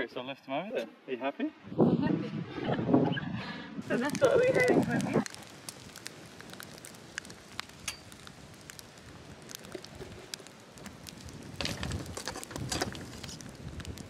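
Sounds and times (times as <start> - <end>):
campfire crackling and popping: 3.8 - 14.0.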